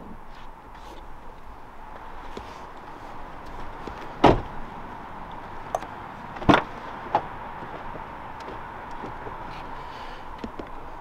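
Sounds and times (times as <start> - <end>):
loud thumps: 4.2 - 4.5.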